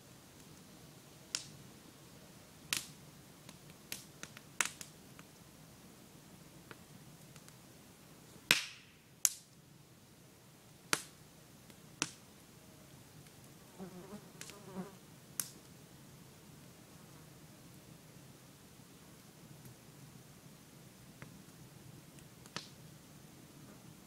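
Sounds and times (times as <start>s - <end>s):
campfire crackling: 0.0s - 13.7s, 14.3s - 24.0s
sharp fire pops: 1.3s - 1.5s, 2.7s - 5.3s, 8.5s - 9.5s, 10.9s - 12.2s, 15.4s - 15.7s, 21.2s - 22.8s.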